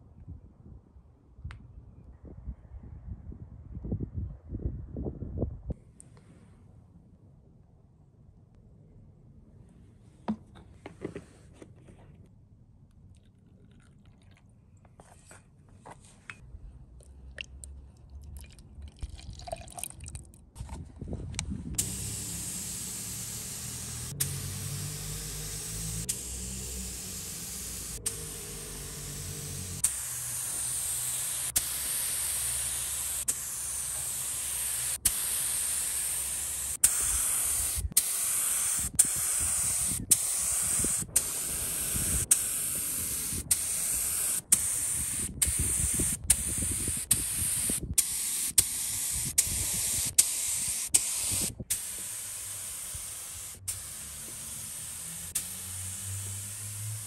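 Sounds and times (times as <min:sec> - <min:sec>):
spray gun clicks: 0:21.8 - 0:56.8
spray gun hissing: 0:21.8 - 0:57.0.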